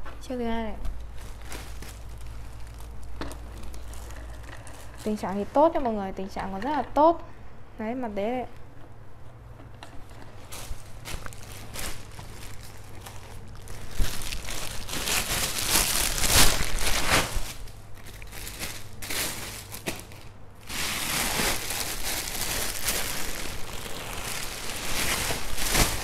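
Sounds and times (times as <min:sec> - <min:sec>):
plastic bags crinkling: 0:00.9 - 0:05.6, 0:10.0 - 0:26.0.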